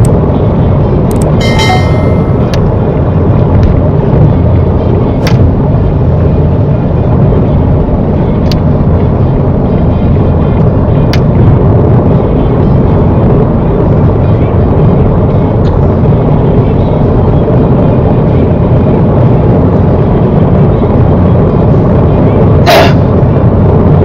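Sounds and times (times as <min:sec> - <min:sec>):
road and tyre noise in car: 0:00.0 - 0:24.0
chiming sound effect: 0:01.4 - 0:02.8.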